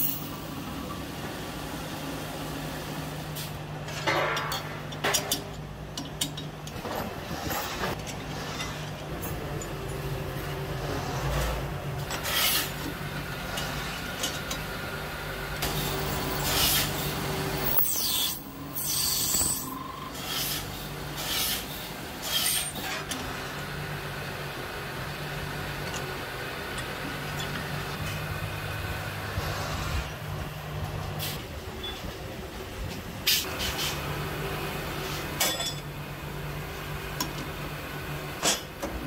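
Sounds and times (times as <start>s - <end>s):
rasping metal cutting: 16.4s - 23.0s.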